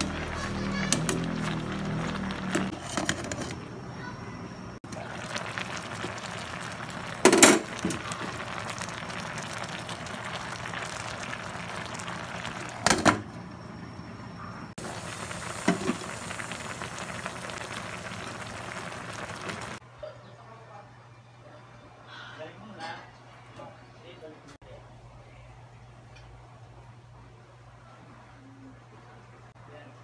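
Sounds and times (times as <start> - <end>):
pot boiling and bubbling: 0.0 - 19.8.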